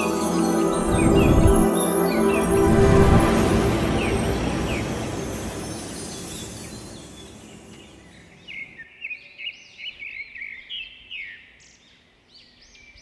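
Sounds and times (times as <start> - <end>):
music: 0.0 - 8.4.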